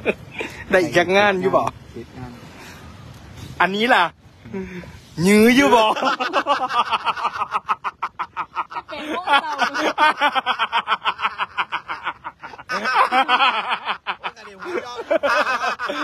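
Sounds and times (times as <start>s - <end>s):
woman laughing hard: 6.0s - 16.0s.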